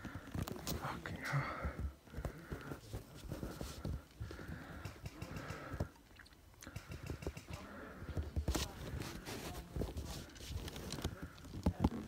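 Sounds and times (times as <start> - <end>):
cloth rustling over microphone: 0.0 - 4.4, 8.2 - 12.0.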